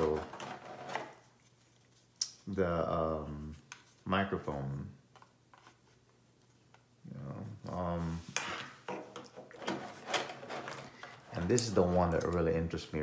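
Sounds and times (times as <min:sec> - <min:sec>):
plastic gadgets clicking and knocking: 0:00.0 - 0:01.2.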